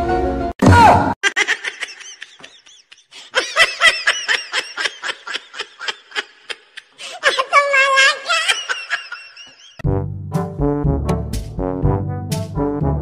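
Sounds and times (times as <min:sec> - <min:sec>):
high-pitched giggling laughter: 0:01.2 - 0:09.8.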